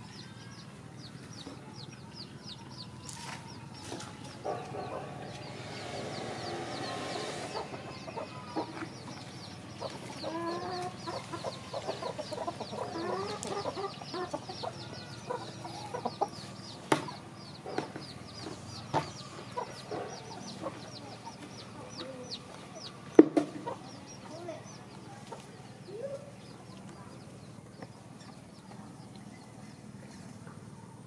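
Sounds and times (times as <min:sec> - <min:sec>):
chickens clucking: 0:02.6 - 0:30.8.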